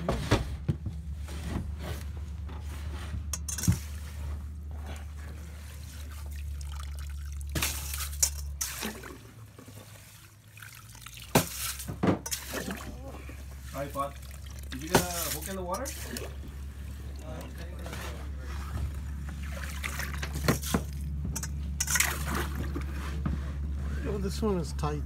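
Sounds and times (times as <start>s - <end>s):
low steady hum: 0.0s - 25.0s
skimmer scooping slush and ice: 1.2s - 24.6s
water trickling and dripping: 5.9s - 17.9s.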